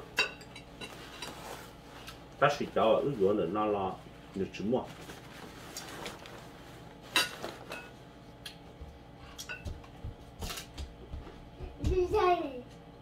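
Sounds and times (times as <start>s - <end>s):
tableware clinking: 0.1s - 1.4s, 7.1s - 8.0s.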